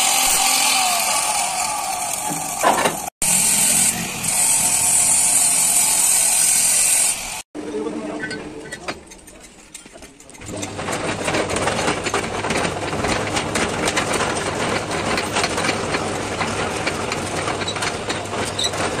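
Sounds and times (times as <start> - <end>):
lathe scraping cutting noise: 0.0 - 7.5
metal lathe humming: 0.0 - 7.5.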